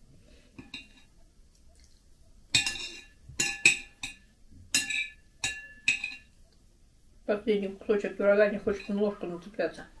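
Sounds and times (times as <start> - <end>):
metal spoon clinking on ceramic plate: 2.5 - 6.3.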